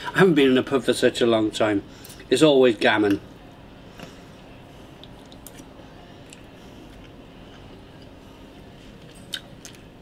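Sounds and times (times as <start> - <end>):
low steady room hum: 0.0 - 10.0
man chewing: 4.9 - 8.2, 8.9 - 10.0.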